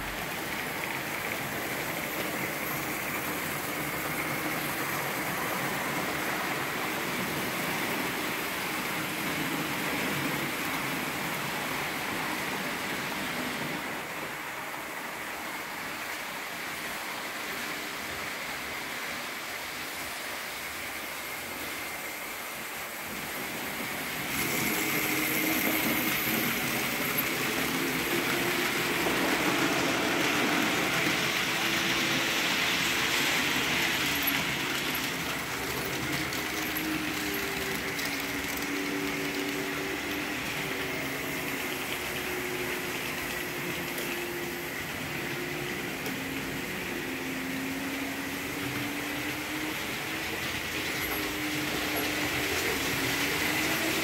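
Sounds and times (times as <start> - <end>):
model train wheels on rails: 0.0 - 54.0.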